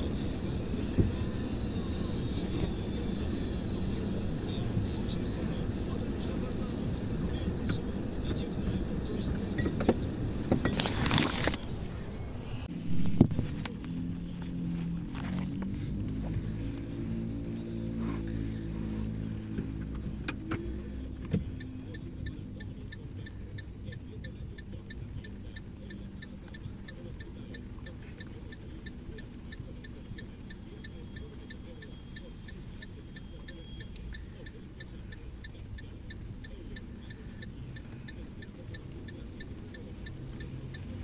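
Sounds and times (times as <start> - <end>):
car road rumble: 0.0 - 41.0
light even ticking: 13.7 - 41.0.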